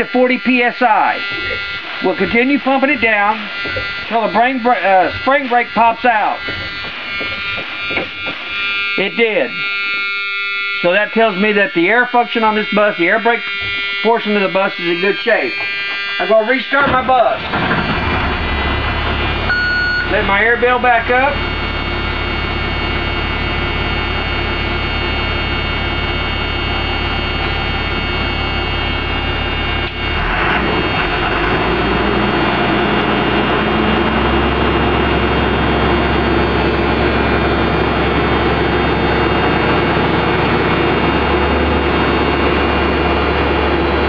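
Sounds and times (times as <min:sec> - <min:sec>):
diesel engine idling: 0:15.2 - 0:44.0.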